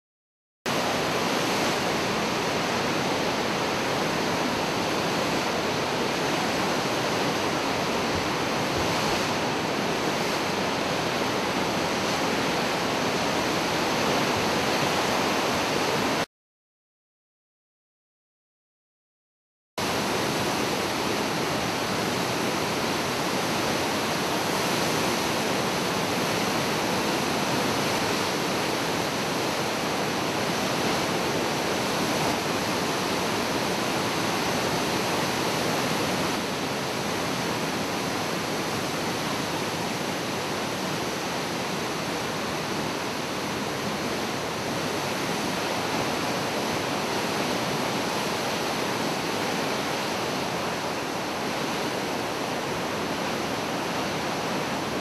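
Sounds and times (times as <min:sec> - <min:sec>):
floodwater roaring through dam: 0:00.7 - 0:16.3, 0:19.8 - 0:55.0.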